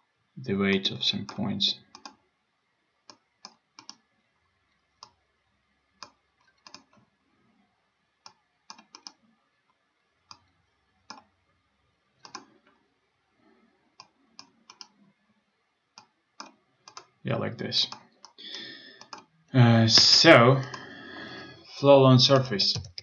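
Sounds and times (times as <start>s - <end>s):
computer mouse button clicking: 2.0s - 2.2s, 3.1s - 4.0s, 6.0s - 6.9s, 8.7s - 9.2s, 12.2s - 12.5s, 14.0s - 14.9s.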